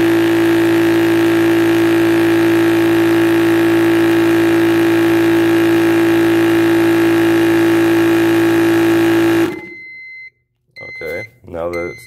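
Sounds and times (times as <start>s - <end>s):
air compressor droning: 0.0s - 9.9s
thin steady beep: 6.5s - 12.0s.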